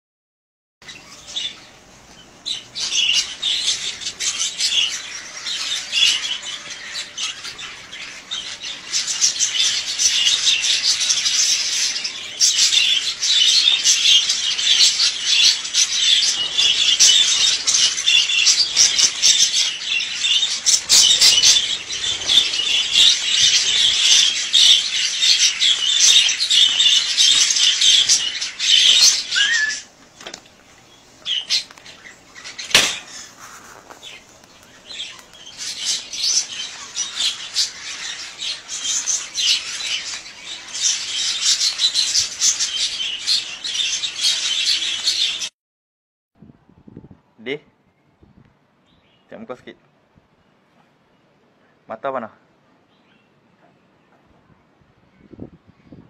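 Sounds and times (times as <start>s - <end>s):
budgerigars chattering and chirping: 0.8s - 30.0s, 30.8s - 45.5s.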